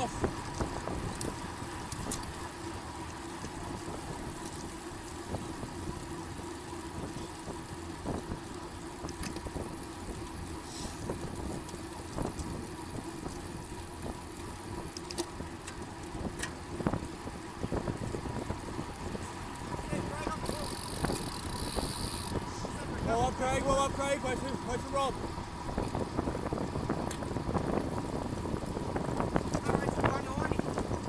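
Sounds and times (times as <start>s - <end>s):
bicycle tyres rolling on road: 0.0s - 31.0s
small clicks and rattles: 0.4s - 22.4s, 28.4s - 31.0s.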